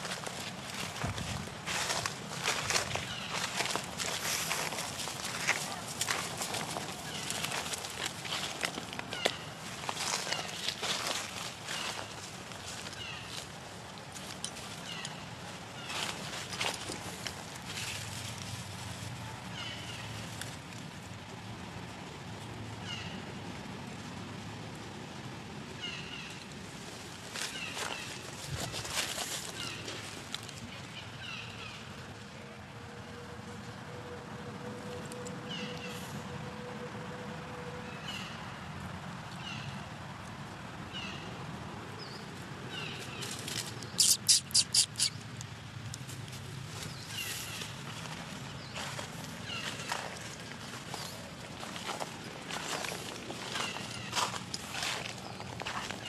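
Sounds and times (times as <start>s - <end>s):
baby monkey squeaking cries: 44.0s - 45.2s.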